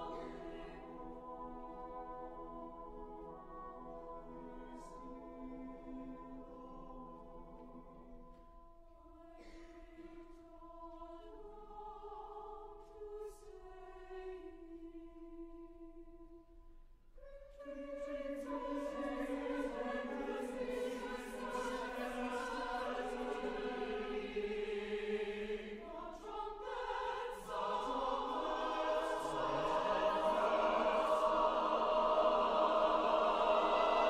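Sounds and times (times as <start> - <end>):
mixed choir singing chords: 0.0 - 8.2, 17.2 - 34.0.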